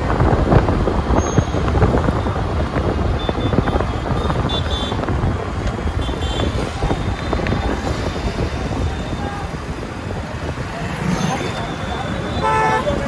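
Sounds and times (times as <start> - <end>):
motorcycles passing: 0.0 - 13.0
wind buffeting microphone: 0.0 - 13.0
car passing: 7.6 - 13.0.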